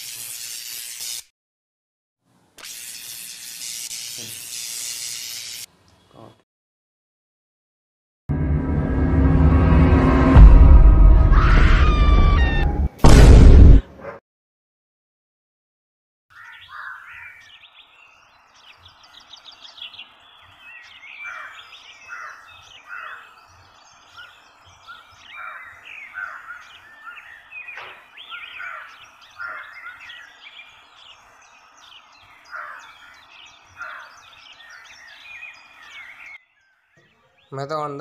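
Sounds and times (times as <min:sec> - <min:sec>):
small birds chirping: 0:16.3 - 0:38.0.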